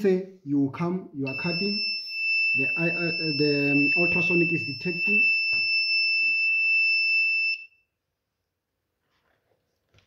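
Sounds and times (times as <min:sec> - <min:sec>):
high-pitched buzzer beep: 0:01.3 - 0:06.3.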